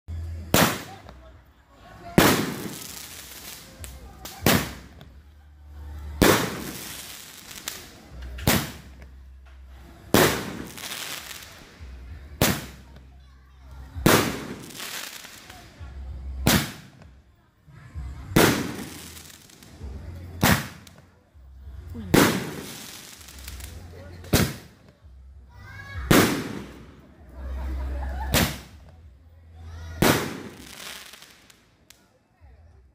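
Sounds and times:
firework bangs: 0.5s - 1.1s, 2.2s - 5.0s, 6.2s - 9.0s, 10.1s - 11.6s, 12.4s - 13.0s, 14.0s - 15.6s, 16.4s - 17.0s, 18.4s - 19.6s, 20.4s - 21.0s, 22.1s - 24.8s, 26.1s - 27.0s, 28.3s - 28.8s, 30.0s - 31.5s
firework hiss: 2.2s - 5.0s, 6.2s - 9.0s, 10.1s - 11.8s, 14.0s - 15.8s, 18.4s - 19.8s, 22.1s - 24.7s, 30.0s - 31.6s.

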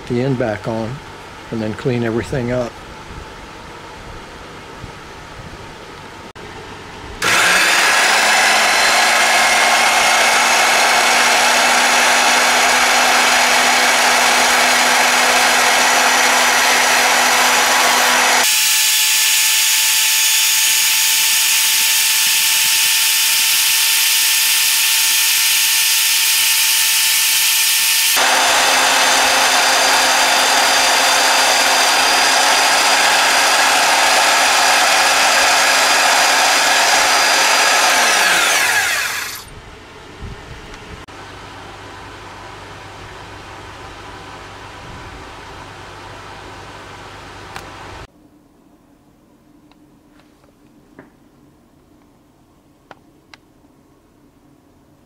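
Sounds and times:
band saw cutting metal: 7.2s - 39.5s
band saw running: 7.2s - 39.5s.

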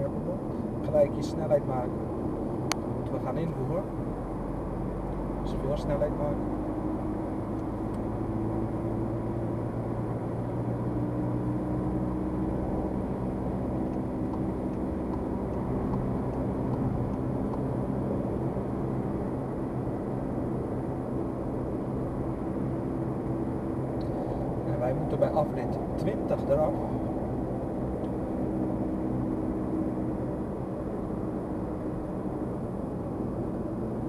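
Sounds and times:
car engine rumble: 0.0s - 34.0s.

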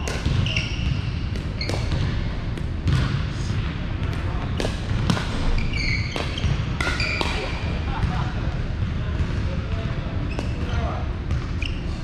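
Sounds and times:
ball bouncing on hardwood court: 0.0s - 8.2s, 11.3s - 11.5s
low hall hum: 0.0s - 12.0s
sneaker squeaks on floor: 0.2s - 2.1s, 5.4s - 7.6s, 10.2s - 12.0s.

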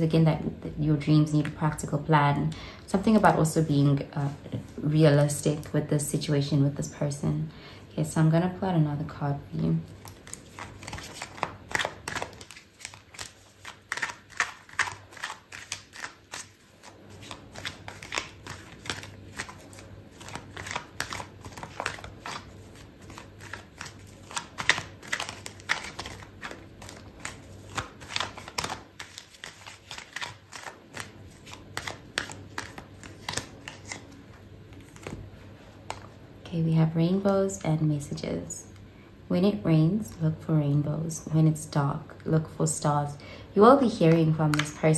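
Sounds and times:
cards being shuffled: 9.8s - 36.2s.

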